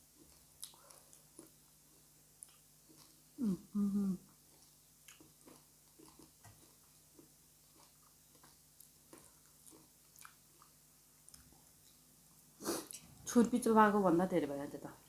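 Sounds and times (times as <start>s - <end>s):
low steady hum: 0.0s - 15.0s
chewing and wet mouth clicks: 0.2s - 1.6s, 4.6s - 10.7s.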